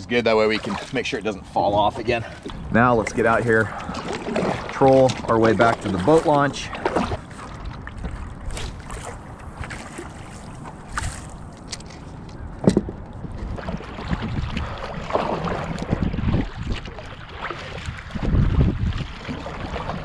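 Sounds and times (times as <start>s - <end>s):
paddle strokes splashing: 0.3s - 12.4s, 13.2s - 20.0s
wind on microphone: 12.3s - 20.0s.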